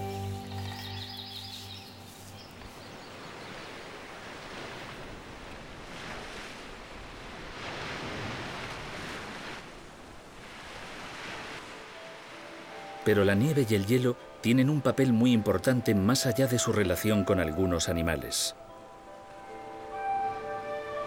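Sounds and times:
music: 0:00.0 - 0:02.3, 0:11.6 - 0:21.0
waves washing: 0:00.0 - 0:15.2.

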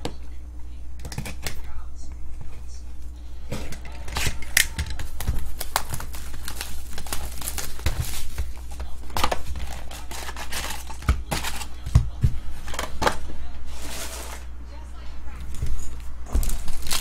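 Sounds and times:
low steady hum: 0:00.0 - 0:17.0
card packs handled: 0:03.5 - 0:14.5, 0:15.4 - 0:17.0
shrink wrap crinkling and tearing: 0:03.8 - 0:11.8, 0:16.3 - 0:17.0.

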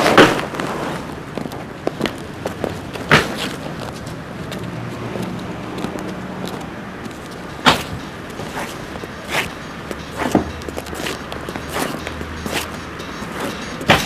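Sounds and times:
car road noise hum: 0:00.0 - 0:14.0
sharp knocks and clatters: 0:05.8 - 0:14.0.

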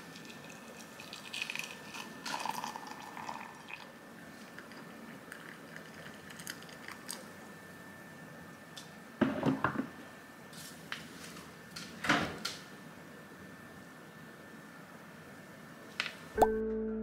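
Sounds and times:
hot water pouring into glass mug: 0:00.0 - 0:07.2.

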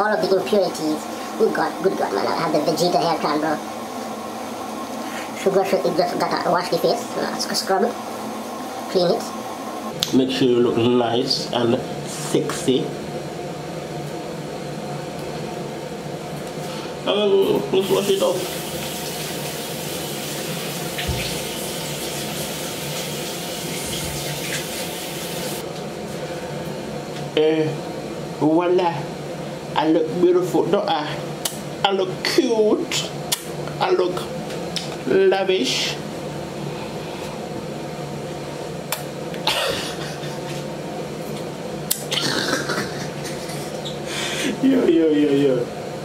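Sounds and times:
steady low hum: 0:00.0 - 0:46.0
sink tap running: 0:17.8 - 0:25.6.

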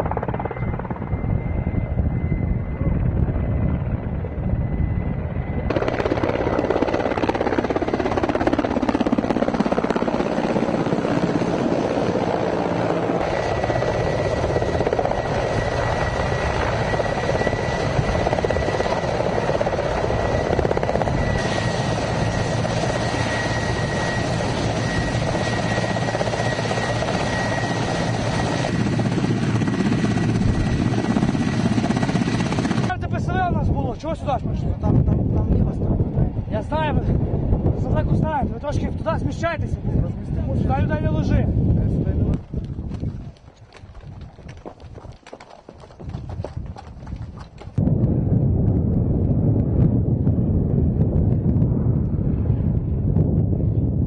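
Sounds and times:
high turbine whine: 0:00.0 - 0:43.0
helicopter rotor and engines: 0:00.0 - 0:54.0.

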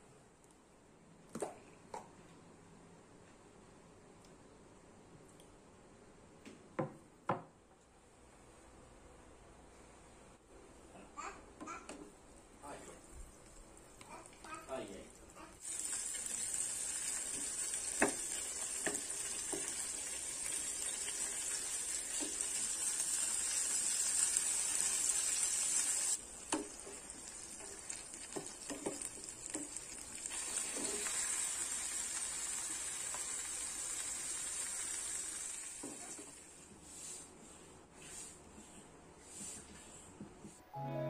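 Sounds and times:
oil sizzling in a frying pan: 0:15.6 - 0:36.4.

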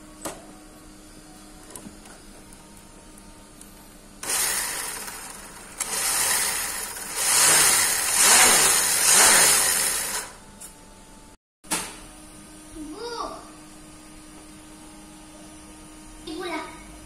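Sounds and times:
electric motor whirring: 0:04.2 - 0:10.4.

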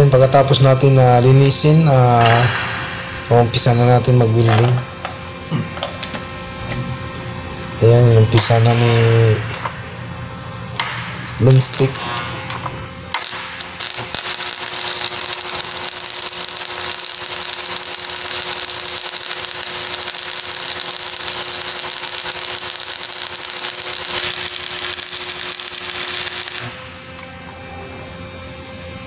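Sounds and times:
welding arc crackling: 0:10.7 - 0:27.1.

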